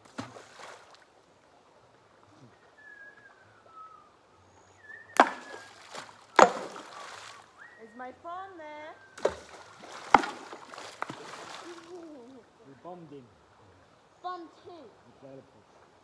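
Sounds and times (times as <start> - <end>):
stones splashing into water: 0.0 - 1.1, 5.1 - 7.5, 9.2 - 12.0.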